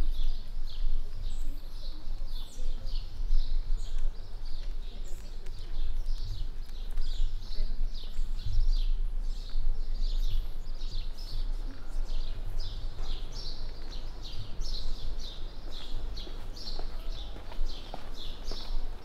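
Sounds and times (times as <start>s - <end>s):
footsteps on stone: 12.9s - 19.0s.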